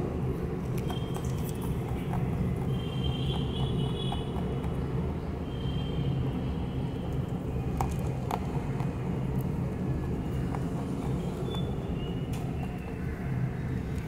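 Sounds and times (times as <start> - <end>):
rabbit crunching food pellets: 0.6 - 4.8, 7.0 - 13.2.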